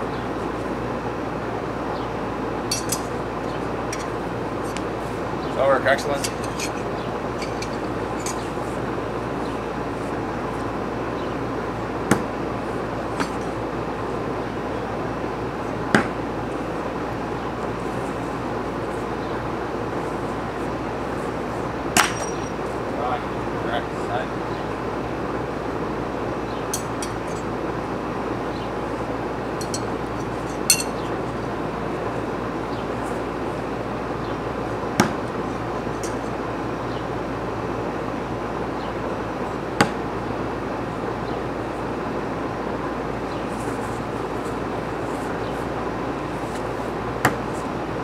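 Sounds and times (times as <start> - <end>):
outdoor background hiss: 0.0 - 48.0
steel knives clinking: 2.7 - 3.1, 6.0 - 8.5, 22.0 - 22.6, 26.7 - 27.4, 29.6 - 31.1, 36.0 - 36.2
knives striking wooden target: 13.2 - 13.4, 22.0 - 22.4, 30.7 - 31.0, 35.0 - 35.2.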